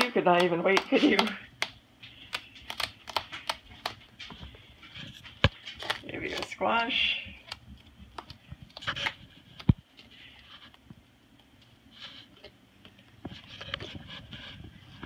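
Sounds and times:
parrot chewing sugarcane: 0:00.6 - 0:10.8.

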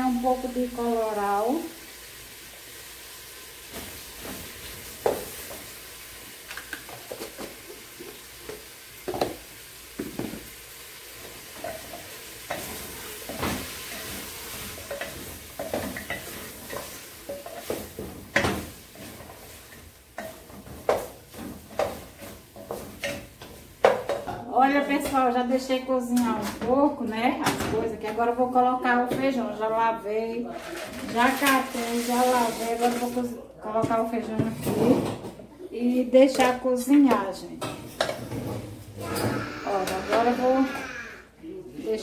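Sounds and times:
meat sizzling: 0:00.0 - 0:23.9, 0:39.0 - 0:41.4.

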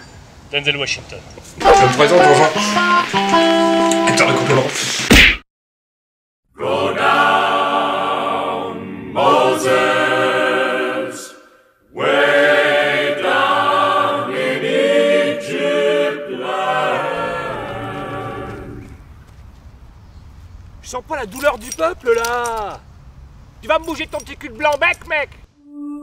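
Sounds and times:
choir singing sustained notes: 0:01.6 - 0:04.6, 0:06.5 - 0:19.0.

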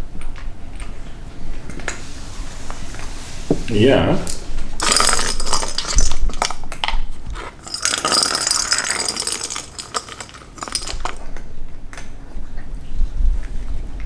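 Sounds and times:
jingle ball rolling and rattling: 0:04.8 - 0:11.4.

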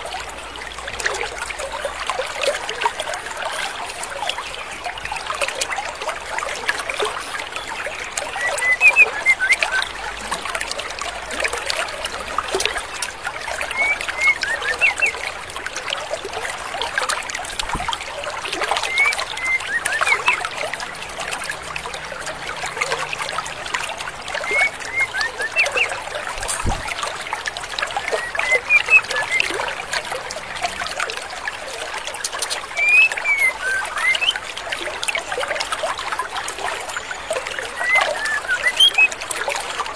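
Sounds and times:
stream water running: 0:00.0 - 0:39.9
high chirping bird calls: 0:08.3 - 0:10.0, 0:13.6 - 0:15.2, 0:18.8 - 0:20.5, 0:24.4 - 0:27.0, 0:28.0 - 0:29.6, 0:32.3 - 0:34.4, 0:37.7 - 0:39.2.

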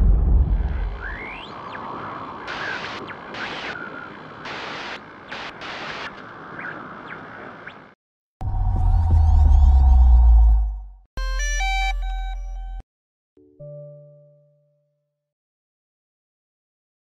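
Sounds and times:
deep boom: 0:00.0 - 0:01.3
hissing static: 0:01.1 - 0:07.0.

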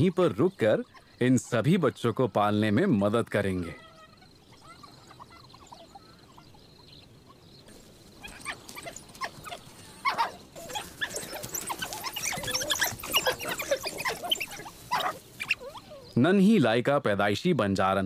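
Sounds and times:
wild dogs twittering and squealing: 0:00.0 - 0:01.4, 0:03.4 - 0:16.2.

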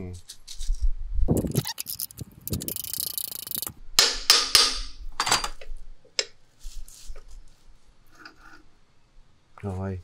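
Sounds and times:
metal washers clicking and scraping: 0:01.4 - 0:03.7.

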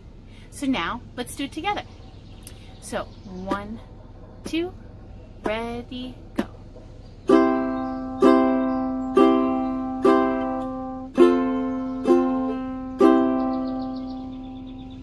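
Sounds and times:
ukulele strumming: 0:07.3 - 0:14.2.

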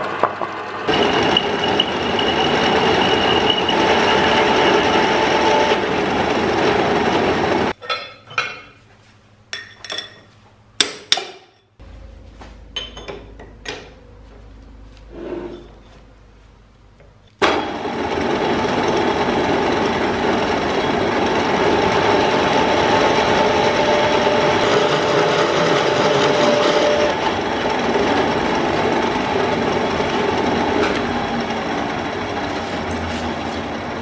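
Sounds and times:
drill press drilling steel: 0:00.9 - 0:07.7
low hum: 0:11.8 - 0:17.0.

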